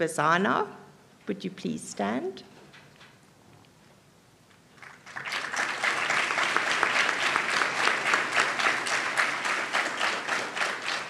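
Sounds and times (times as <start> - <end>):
audience applauding: 4.8 - 11.0.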